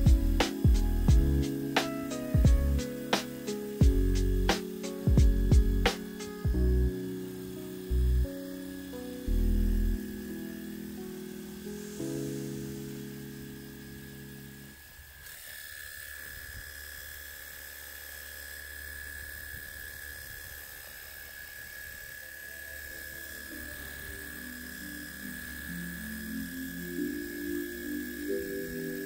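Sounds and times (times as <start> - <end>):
background music: 0.0 - 14.8, 22.5 - 29.0
small electric motor whining: 0.0 - 29.0.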